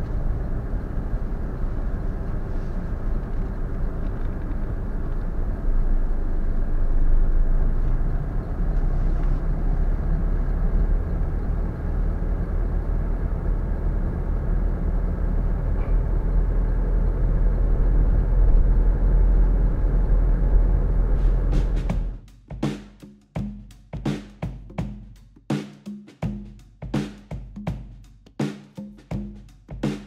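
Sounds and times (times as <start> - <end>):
car engine rumble: 0.0 - 22.3.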